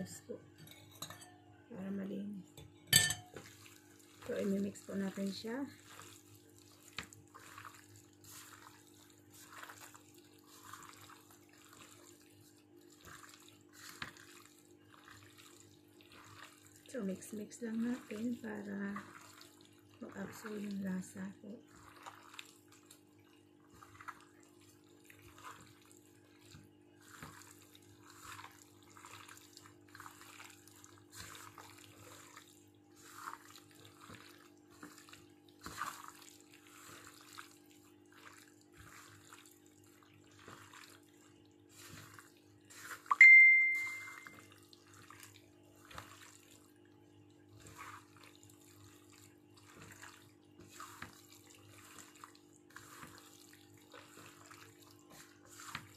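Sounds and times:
wet squishing of meat: 3.4s - 43.1s, 44.2s - 55.9s
loud high ring: 43.1s - 44.3s.

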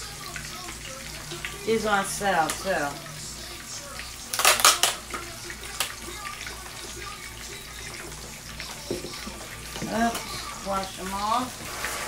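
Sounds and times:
plastic container crackling: 4.3s - 5.2s.

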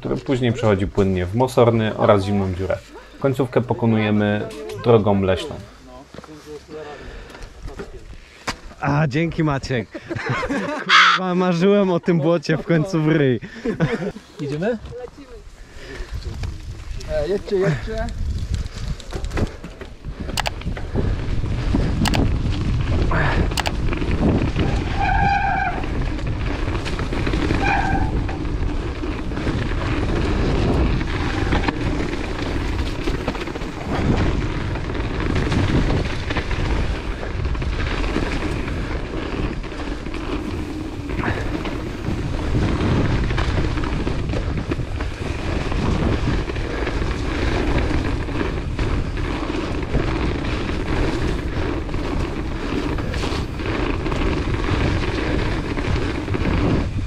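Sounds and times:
tyres rumbling on dirt: 0.0s - 10.8s, 13.0s - 57.0s
wind rush on microphone: 14.7s - 57.0s.

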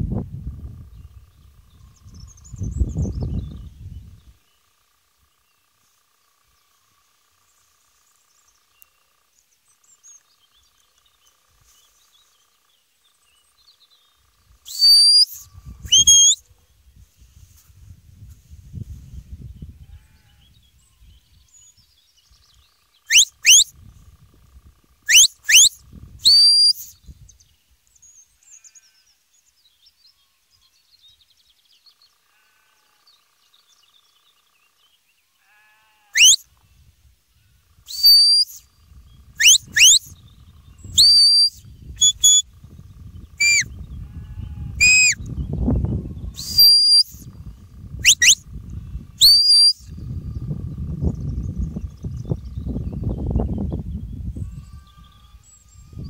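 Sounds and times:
wind rumbling on microphone: 0.0s - 4.4s, 15.4s - 21.6s, 23.4s - 27.6s, 38.7s - 56.0s
sharp whistle blasts: 14.7s - 16.4s, 23.1s - 23.7s, 25.1s - 27.0s, 36.2s - 36.4s, 37.9s - 38.6s, 39.4s - 40.1s, 41.0s - 42.4s, 43.4s - 43.7s, 44.8s - 45.2s, 46.4s - 47.2s, 48.0s - 48.4s, 49.2s - 49.9s.

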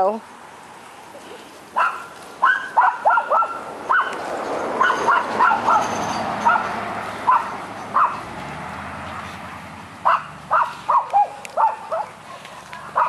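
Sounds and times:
dog barking: 1.8s - 4.2s, 4.8s - 8.2s, 10.0s - 13.0s.

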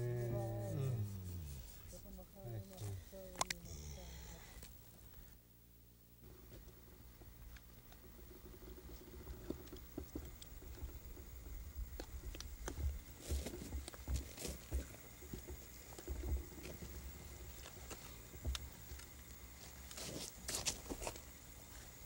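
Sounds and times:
low uneven rumble: 0.0s - 5.4s.

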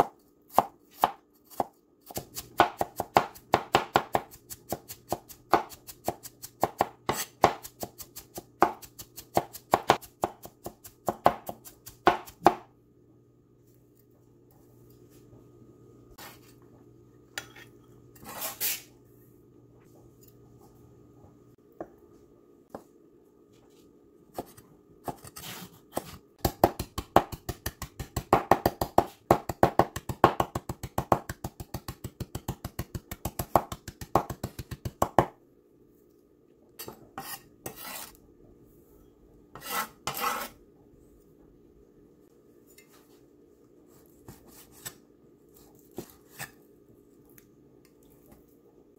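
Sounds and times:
blade scraping board: 37.2s - 38.2s, 39.6s - 40.6s.

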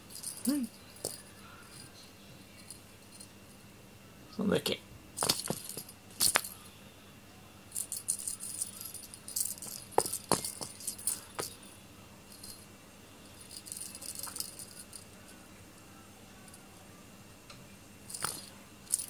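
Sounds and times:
small bell jingling: 0.0s - 3.6s, 5.2s - 6.7s, 7.7s - 15.2s, 18.1s - 19.0s.

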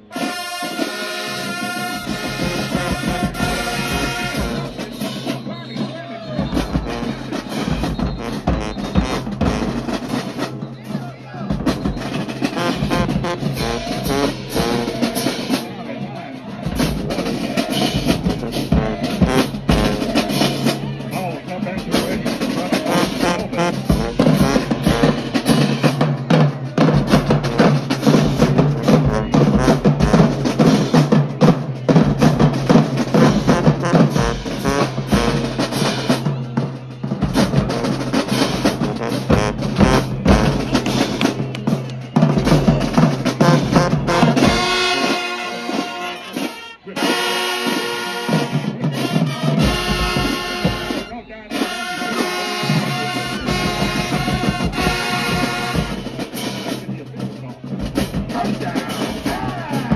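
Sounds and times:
horns playing held chords: 0.0s - 10.5s, 12.4s - 16.6s, 33.1s - 56.8s
drumline pounding: 0.0s - 59.9s
marching band playing: 0.0s - 59.9s.

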